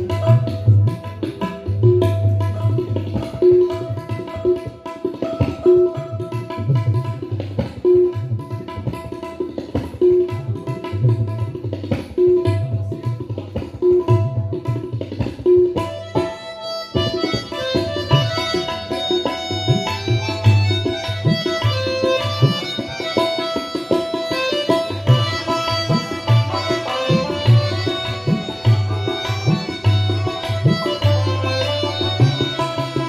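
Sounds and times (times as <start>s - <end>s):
tabla rhythm: 0.0s - 33.0s
harmonium drone: 15.8s - 33.0s.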